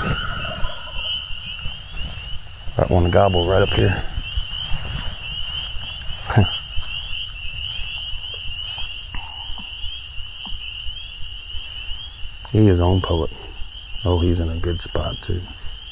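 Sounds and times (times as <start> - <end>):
frogs chirping: 0.0 - 15.9.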